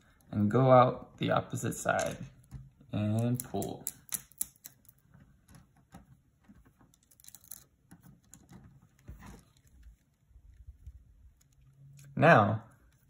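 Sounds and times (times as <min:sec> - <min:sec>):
plastic beads clicking: 0:03.1 - 0:05.0, 0:06.9 - 0:08.6.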